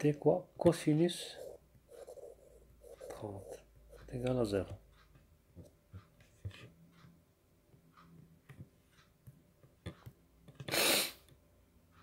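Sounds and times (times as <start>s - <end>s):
stylus tapping on tablet screen: 1.9s - 10.7s
burst of hiss-like noise: 10.7s - 11.2s.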